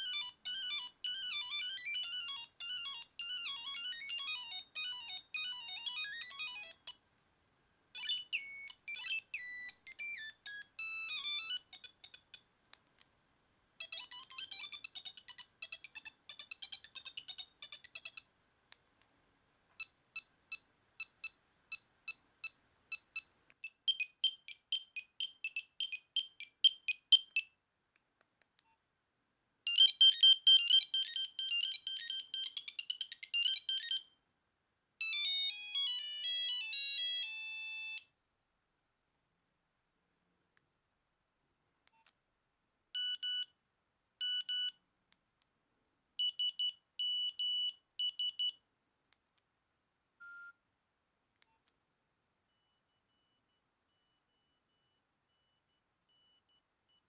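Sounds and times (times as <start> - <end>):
beeping ringtone melodies: 0.0 - 7.0, 8.0 - 12.0, 13.8 - 18.2, 23.7 - 27.4, 29.7 - 34.1, 35.0 - 38.1.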